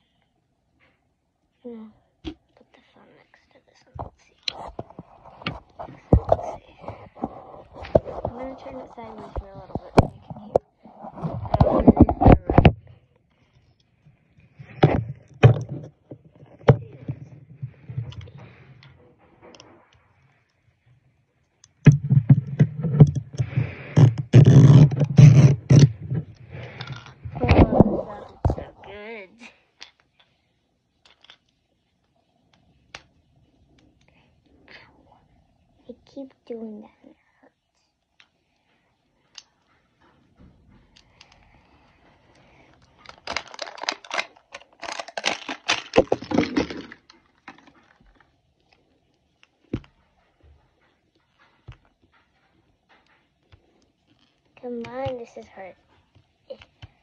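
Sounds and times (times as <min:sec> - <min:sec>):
toy rustling against microphone: 0:03.6 - 0:12.7
plastic wrapper crinkling: 0:42.8 - 0:48.2.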